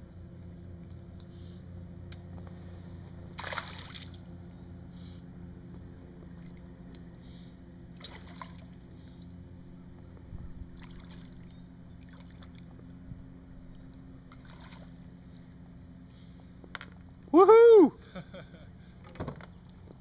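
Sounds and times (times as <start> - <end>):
steady low hum: 0.0 - 20.0
fish splashing at water surface: 3.4 - 4.2, 8.0 - 8.8.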